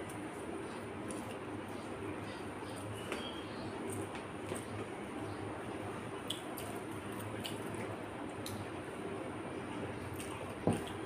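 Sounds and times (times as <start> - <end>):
low background hum: 0.0 - 11.0
soft wet eating sounds: 6.2 - 11.0.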